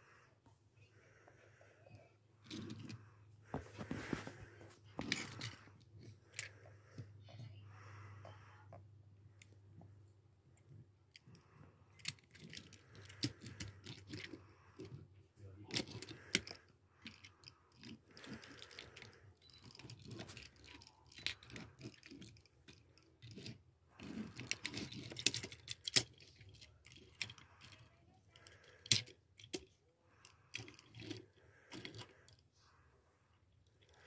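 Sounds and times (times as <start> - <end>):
toy trailer clicking and clacking: 4.1 - 7.1, 10.6 - 32.5.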